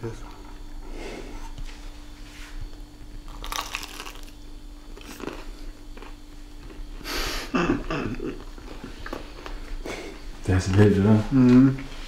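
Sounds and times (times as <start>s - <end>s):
crunching bites of fried chicken: 3.3s - 4.4s
chewing: 5.0s - 6.8s, 8.1s - 10.8s.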